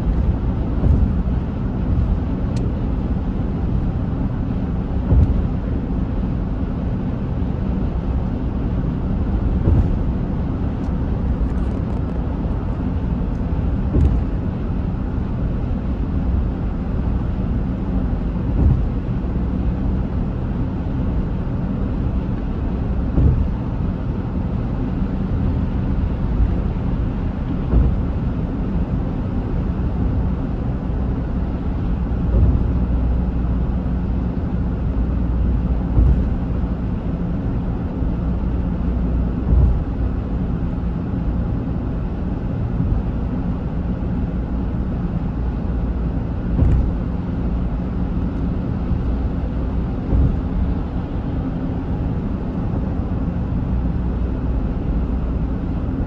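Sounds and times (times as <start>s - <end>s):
short thumps: 0.0s - 2.9s, 5.0s - 5.7s, 9.5s - 10.2s, 13.7s - 14.5s, 18.5s - 19.1s, 23.0s - 23.7s, 27.5s - 28.3s, 32.2s - 33.1s, 35.7s - 36.6s, 39.4s - 40.0s, 46.5s - 47.7s, 50.0s - 51.3s
car road and engine rumble: 0.0s - 56.0s.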